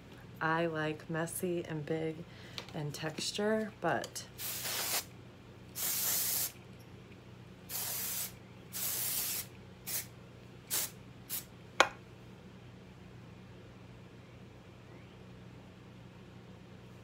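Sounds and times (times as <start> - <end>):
hair spray hissing: 4.4 - 5.1, 5.8 - 6.6, 7.7 - 10.1, 10.7 - 11.5.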